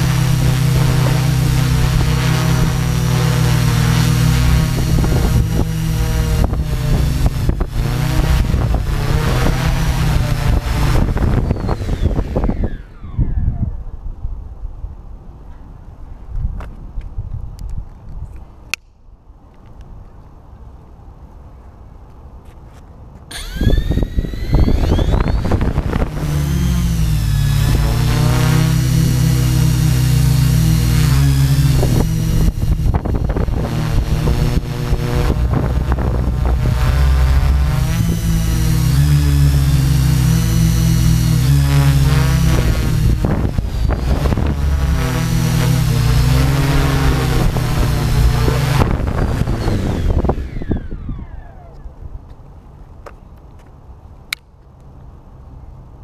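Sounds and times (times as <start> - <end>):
drone motors and propellers humming: 0.0 - 14.9, 23.3 - 52.8.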